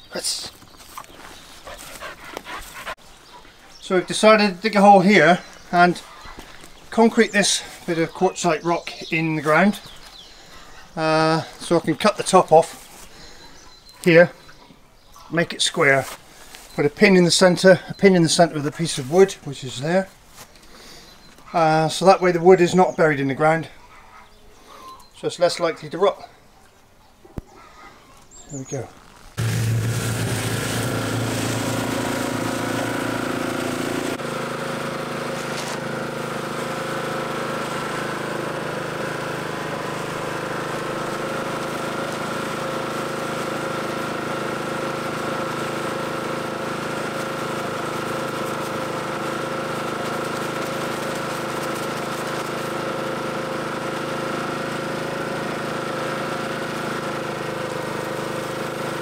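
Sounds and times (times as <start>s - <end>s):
cement mixer rattly drone: 29.4s - 59.0s.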